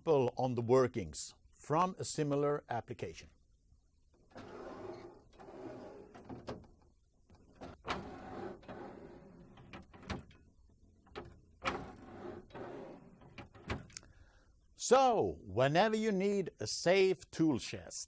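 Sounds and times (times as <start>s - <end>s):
drawers sliding on metal runners: 4.2s - 14.0s
drawer clicks and knocks: 4.3s - 14.0s.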